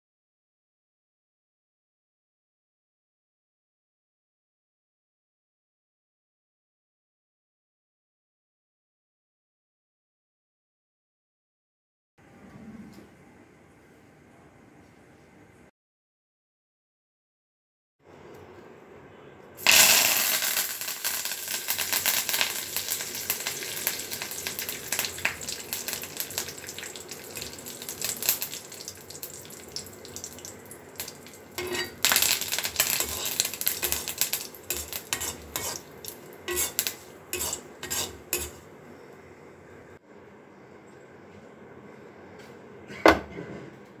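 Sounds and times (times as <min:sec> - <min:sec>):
vegetables sizzling in hot oil: 0:19.6 - 0:38.7
wooden spatula scraping clay pot: 0:32.8 - 0:38.6.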